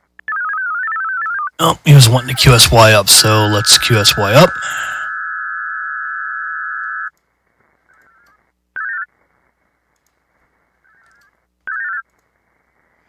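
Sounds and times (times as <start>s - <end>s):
digital modem data tones: 0.3s - 7.1s, 8.0s - 9.1s, 10.9s - 12.1s
radio receiver hiss: 1.6s - 5.2s.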